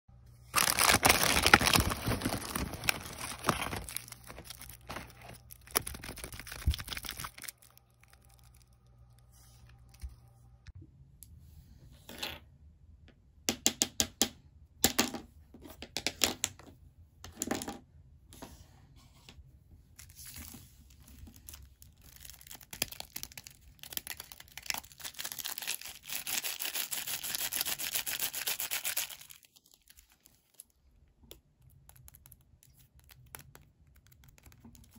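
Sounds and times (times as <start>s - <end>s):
plastic packaging rustling: 0.5s - 8.7s, 20.2s - 30.8s
foil wrapper crinkling: 0.5s - 8.8s, 21.0s - 30.8s.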